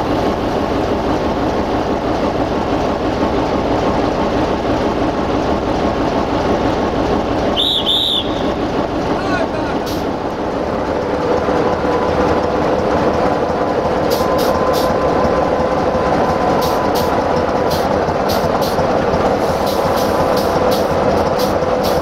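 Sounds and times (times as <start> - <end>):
diesel locomotive engine: 0.0 - 22.0.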